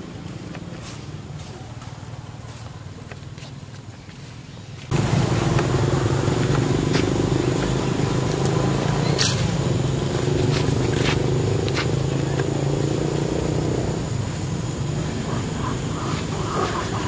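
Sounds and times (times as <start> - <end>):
motor vehicle engine running: 4.9 - 17.0.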